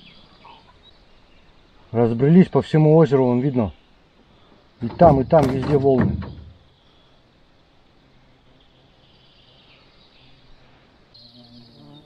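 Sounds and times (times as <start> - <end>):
faint outdoor lake ambience: 0.0 - 12.0
buzzing insect: 8.0 - 12.0.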